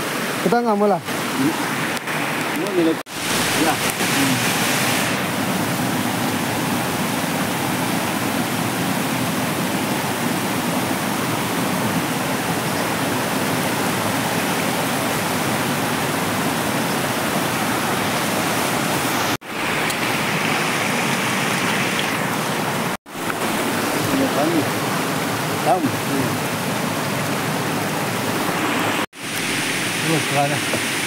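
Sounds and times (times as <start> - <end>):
rushing water of a stream: 0.0 - 31.0.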